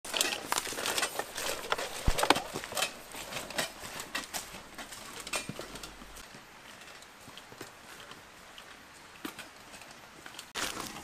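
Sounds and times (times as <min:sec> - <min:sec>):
footsteps crunching dry leaves: 0:00.1 - 0:05.2, 0:10.6 - 0:11.0.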